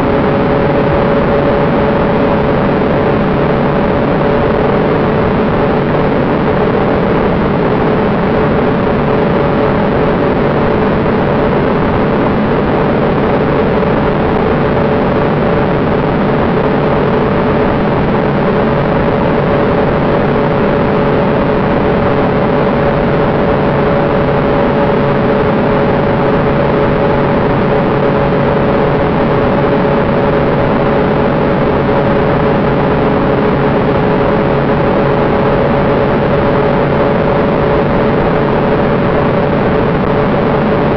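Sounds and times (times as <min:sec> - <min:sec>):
jet engine drone: 0:00.0 - 0:40.9.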